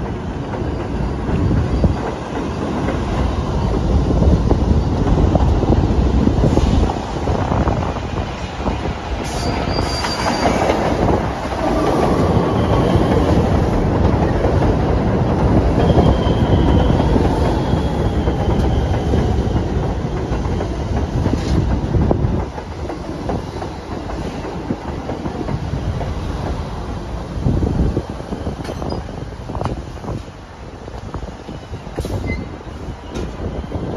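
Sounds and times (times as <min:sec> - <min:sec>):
falling whine of train: 0:00.0 - 0:33.9
subway train wheels rumbling: 0:00.0 - 0:33.9
high wheel squeal: 0:09.2 - 0:10.7.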